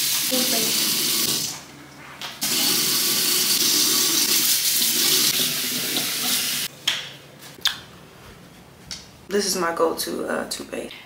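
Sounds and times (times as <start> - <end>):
faucet running into sink: 0.0 - 1.6, 2.4 - 6.7.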